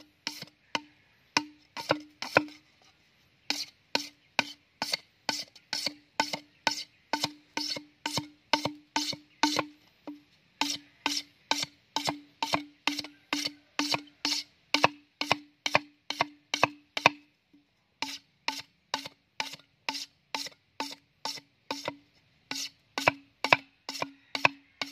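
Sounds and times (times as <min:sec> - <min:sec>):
machete knocking on hollow bamboo: 0:00.2 - 0:02.6, 0:03.5 - 0:17.3, 0:18.0 - 0:24.9.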